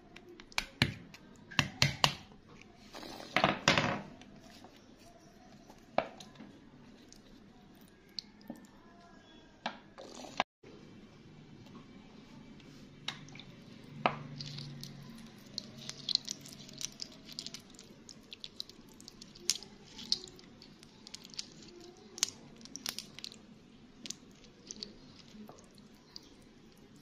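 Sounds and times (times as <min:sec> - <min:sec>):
water dripping and trickling: 0:14.2 - 0:23.4, 0:24.0 - 0:27.0.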